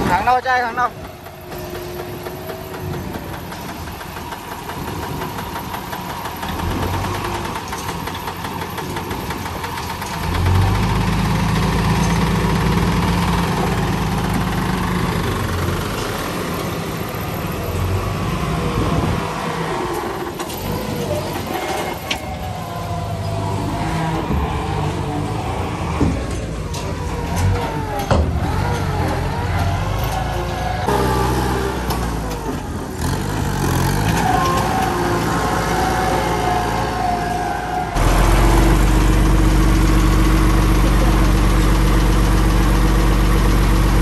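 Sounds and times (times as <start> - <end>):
diesel truck engine running: 0.0 - 44.0.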